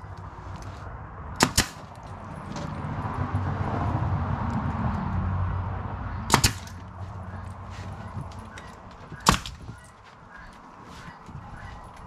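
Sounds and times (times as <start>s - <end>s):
nail gun shots: 1.4s - 2.0s, 6.3s - 6.8s, 9.2s - 9.6s.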